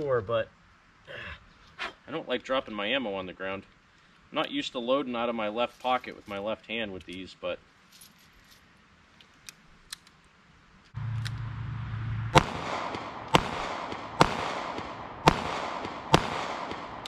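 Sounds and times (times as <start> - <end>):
revolver shots with echo: 12.3 - 17.0.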